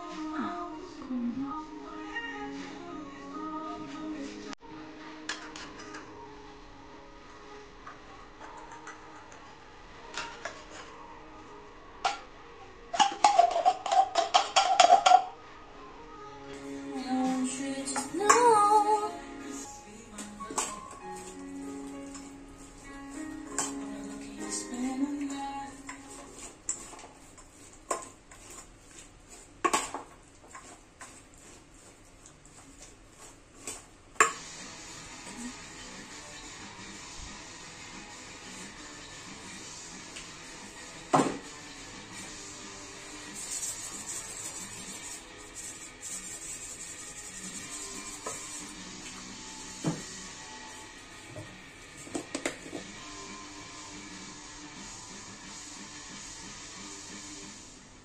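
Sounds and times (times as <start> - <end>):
metal can knocking on steel pot: 13.0 - 15.3.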